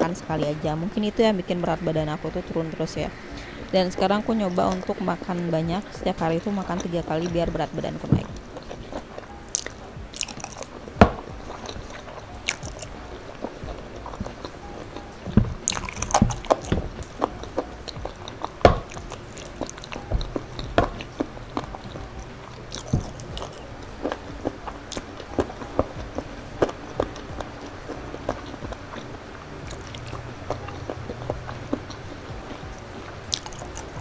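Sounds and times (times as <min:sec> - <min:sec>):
person chewing wetly: 0:08.2 - 0:34.0
sharp mouth clicks and smacks: 0:08.6 - 0:32.0, 0:32.7 - 0:34.0.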